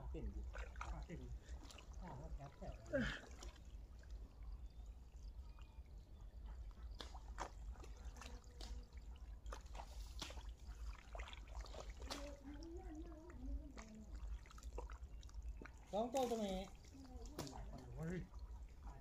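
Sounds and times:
hands squelching in mud: 6.9s - 12.6s
wet splats: 7.0s - 12.6s, 15.6s - 17.8s.

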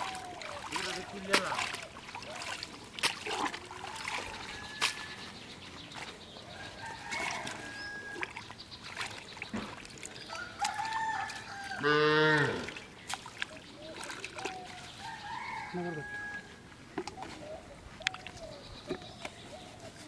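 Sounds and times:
hands splashing in muddy water: 0.0s - 15.3s
farm animal call: 10.3s - 12.8s.

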